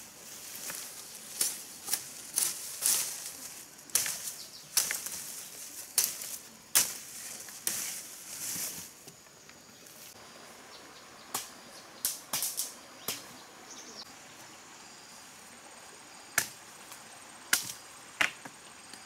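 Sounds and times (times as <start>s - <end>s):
branch dragged through undergrowth: 0.0s - 9.0s
leafy branch swishing and rustling: 0.0s - 9.1s.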